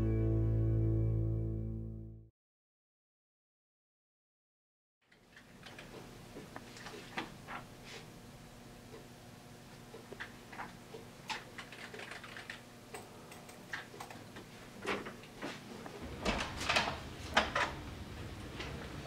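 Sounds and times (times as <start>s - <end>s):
keyboard and mouse clicks: 11.3s - 14.2s.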